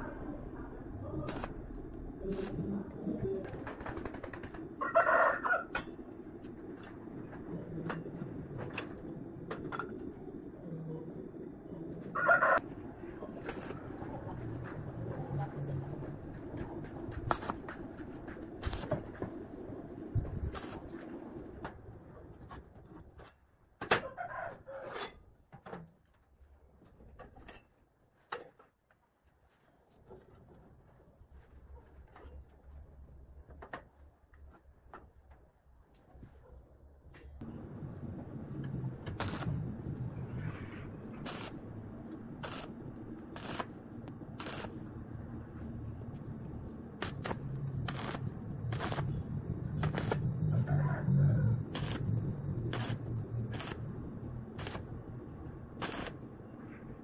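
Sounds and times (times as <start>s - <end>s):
steady low hum: 0.0s - 23.2s, 35.5s - 57.0s
welding arc crackling: 0.9s - 4.5s, 17.1s - 19.2s, 20.4s - 21.5s, 37.6s - 45.2s, 46.1s - 50.8s, 51.4s - 56.4s
rooster crowing: 4.8s - 5.7s, 12.1s - 12.6s, 50.5s - 51.6s.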